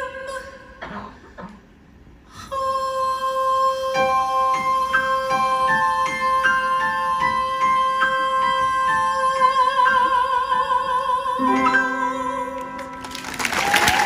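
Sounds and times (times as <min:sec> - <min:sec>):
woman singing: 0:02.4 - 0:13.2
piano and band accompaniment: 0:11.4 - 0:14.0.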